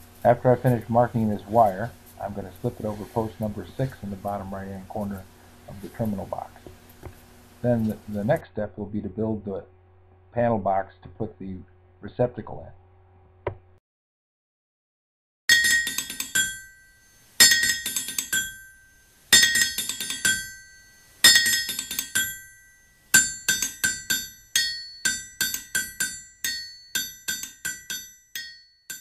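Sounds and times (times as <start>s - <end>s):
hammer strikes on metal anvil: 15.5s - 29.0s.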